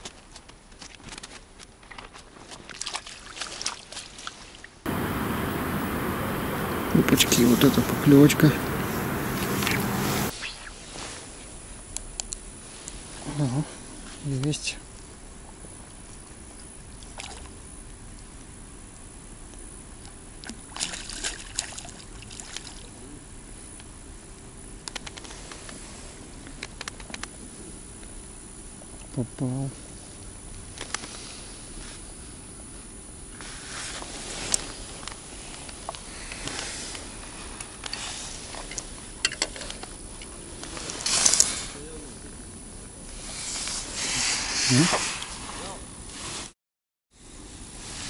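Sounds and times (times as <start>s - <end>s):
water splashing by fish: 1.9s - 10.7s, 16.9s - 17.6s, 20.4s - 22.9s
rustling swishes: 4.9s - 11.4s.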